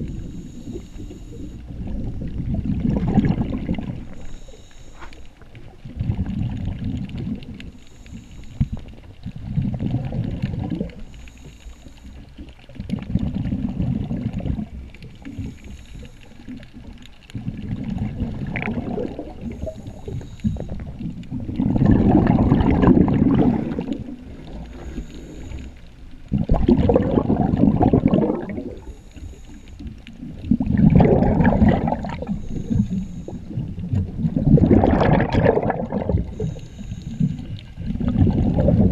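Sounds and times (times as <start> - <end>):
faint hiss: 0.0 - 2.1, 3.7 - 5.8, 6.8 - 9.4, 10.6 - 12.9, 13.6 - 18.1, 19.0 - 21.5, 23.1 - 26.3, 28.6 - 30.5, 32.0 - 34.0, 36.2 - 37.9
exhaled bubbles gurgling underwater: 0.0 - 38.9.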